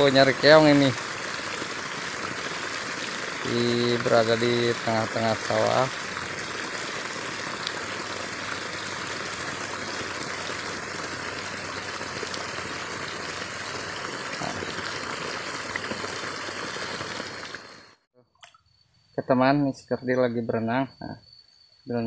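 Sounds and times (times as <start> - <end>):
running water rushing: 0.0 - 18.0.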